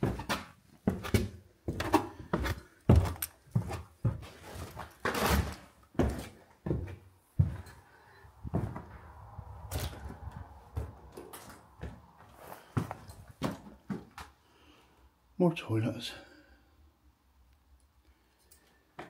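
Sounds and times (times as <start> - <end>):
crunching scrape: 4.3 - 5.8
irregular thuds and knocks: 8.4 - 9.0.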